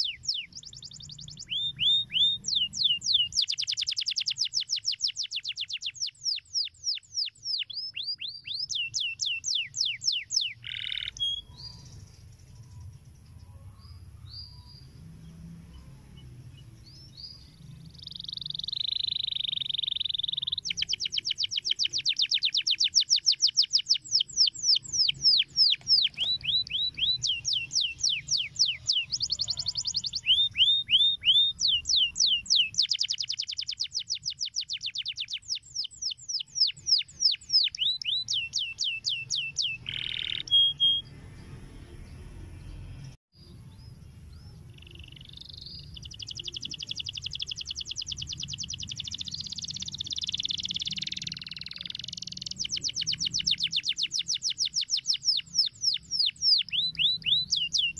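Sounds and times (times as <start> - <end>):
canary singing trills: 0.0 - 57.9.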